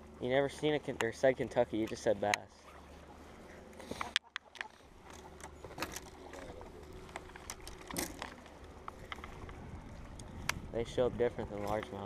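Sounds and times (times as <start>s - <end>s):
low steady rumble: 0.0s - 12.0s
fishing tackle clicks and knocks: 4.0s - 10.7s.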